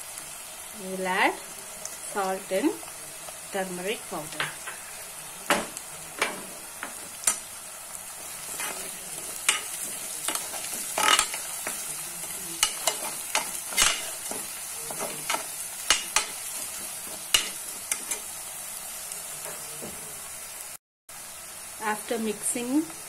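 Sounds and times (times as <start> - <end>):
onion frying in oil: 0.0 - 23.0
steel spoon scraping pot: 8.4 - 11.8.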